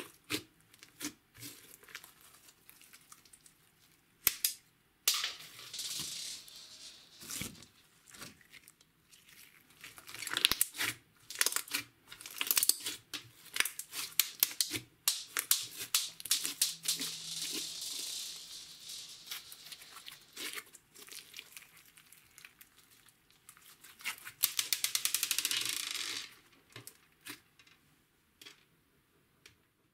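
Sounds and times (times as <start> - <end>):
slime being kneaded by hand: 8.1 - 16.6.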